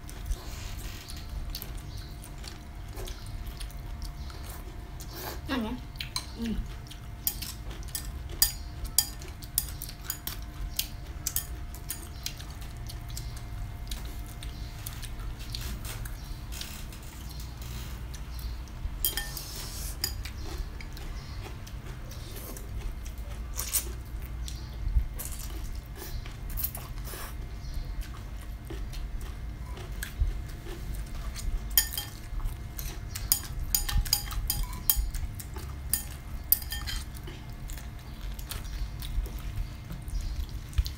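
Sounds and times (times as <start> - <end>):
chopsticks clinking on ceramic bowls: 7.3 - 10.4, 19.0 - 20.4, 31.8 - 32.3, 33.1 - 37.2.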